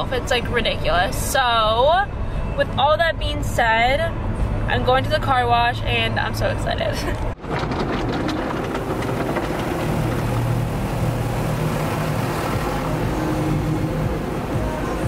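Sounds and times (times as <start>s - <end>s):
low machinery hum: 0.0s - 15.0s
water spraying on car: 7.7s - 15.0s.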